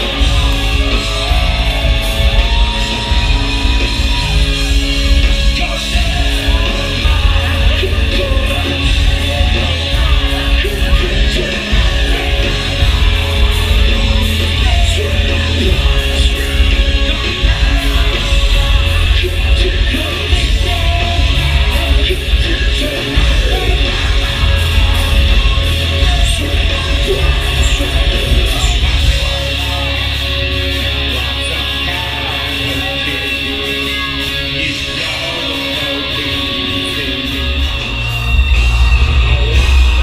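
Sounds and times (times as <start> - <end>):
heavy metal band playing live: 0.0 - 40.0
yelled vocals: 0.0 - 40.0.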